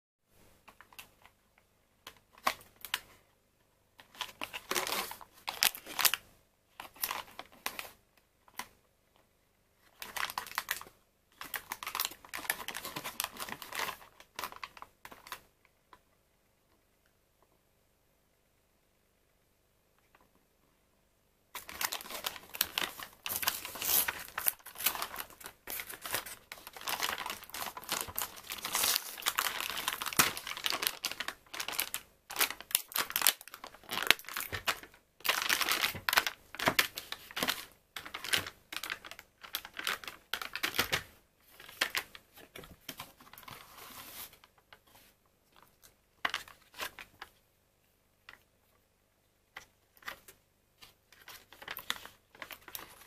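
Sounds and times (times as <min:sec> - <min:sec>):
cardboard packaging tearing: 0:21.6 - 0:40.9.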